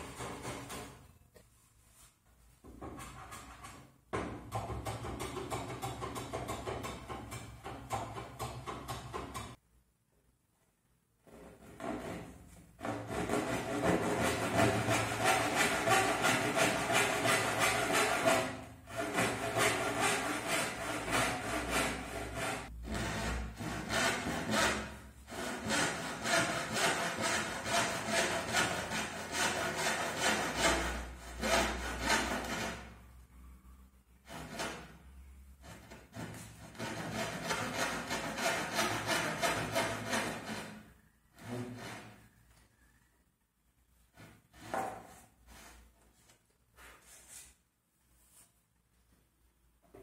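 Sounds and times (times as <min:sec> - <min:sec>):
hand saw cutting wood: 0:12.8 - 0:32.9, 0:35.6 - 0:40.8.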